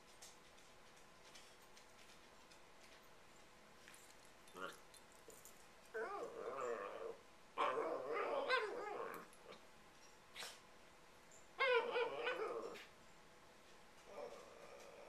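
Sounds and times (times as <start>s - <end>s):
dog whining and yipping: 5.9s - 9.3s, 11.6s - 12.9s.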